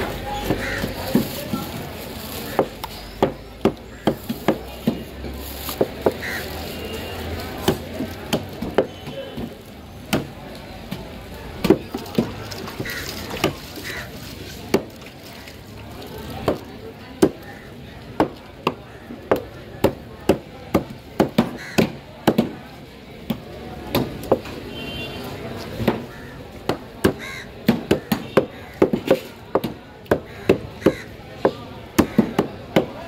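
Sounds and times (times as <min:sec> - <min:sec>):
knife chopping fish on wooden board: 0:02.5 - 0:05.1, 0:26.7 - 0:33.0.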